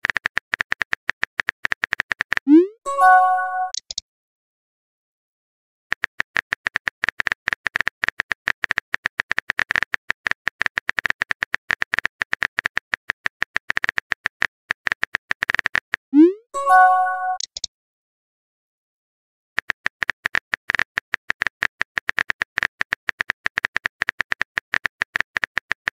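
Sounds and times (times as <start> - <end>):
message sent swoop and chime: 2.5 - 3.8, 16.2 - 17.4.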